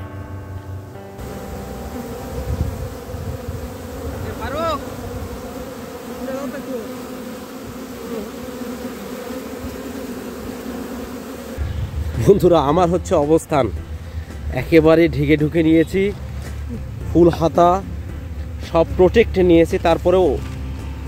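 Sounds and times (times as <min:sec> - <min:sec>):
bees buzzing: 0:01.2 - 0:12.8.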